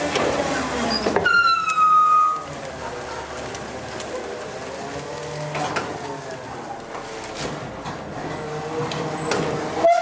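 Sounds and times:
garbage truck packer droning: 0.0s - 10.0s
branches cracking and snapping: 2.4s - 6.2s.

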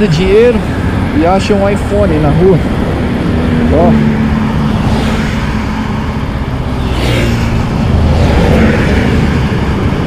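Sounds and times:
traffic rumble: 0.0s - 10.0s
car swishing by: 4.7s - 5.6s.

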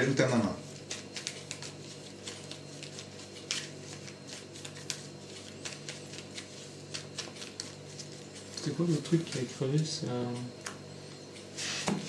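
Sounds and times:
steady low hum: 0.0s - 12.0s
cards being shuffled: 0.8s - 9.8s.

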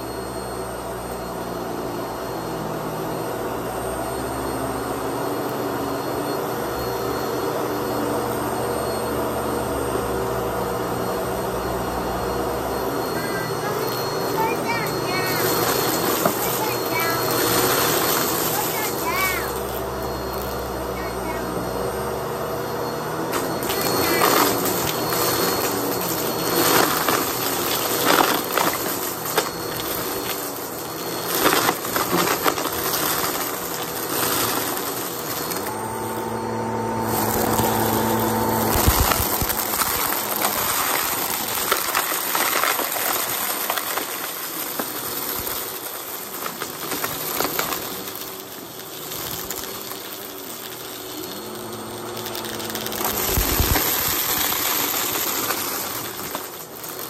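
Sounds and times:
vacuum cleaner running: 0.0s - 57.0s
confetti rattling into vacuum: 13.2s - 19.7s, 23.3s - 35.7s, 37.1s - 57.0s.

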